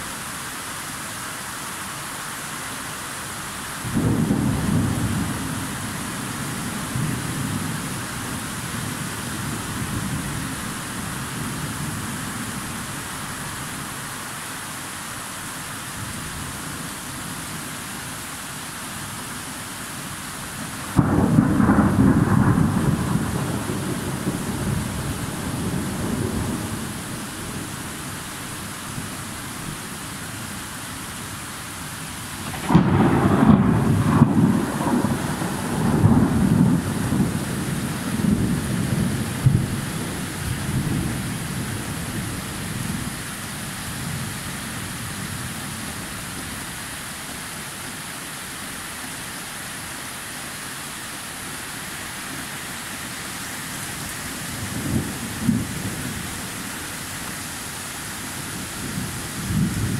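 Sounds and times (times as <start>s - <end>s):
steady rain: 0.0s - 59.9s
rolling thunder: 20.9s - 26.9s, 32.4s - 43.0s, 54.6s - 56.2s
loud thunderclap: 21.0s - 26.7s, 32.4s - 40.1s.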